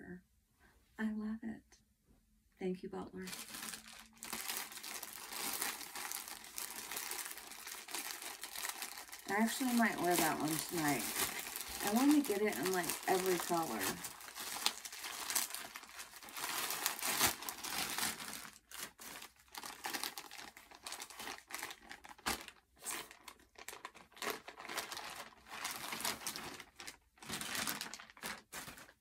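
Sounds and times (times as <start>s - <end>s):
plastic packaging crinkling: 3.3s - 29.0s.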